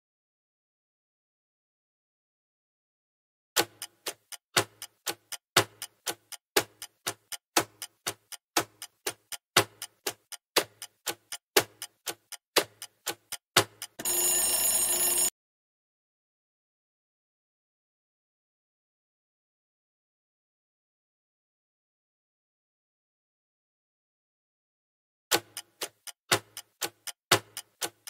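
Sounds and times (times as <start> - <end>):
clock ticking: 3.6 - 14.4, 25.3 - 28.0
alarm ringing: 14.0 - 15.3.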